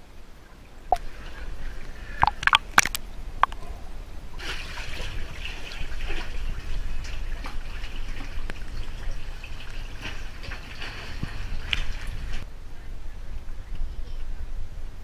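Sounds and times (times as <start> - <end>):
water sloshing and trickling: 0.5 - 12.5.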